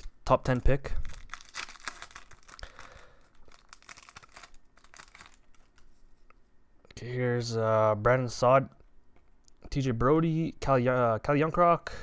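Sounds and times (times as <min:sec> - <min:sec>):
foil wrapper tearing and crinkling: 0:01.0 - 0:05.8.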